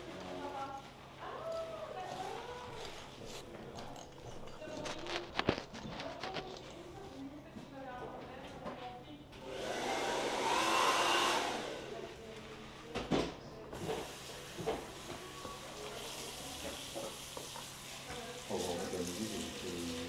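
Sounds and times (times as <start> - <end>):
shower head water rushing over hair: 13.8 - 20.0.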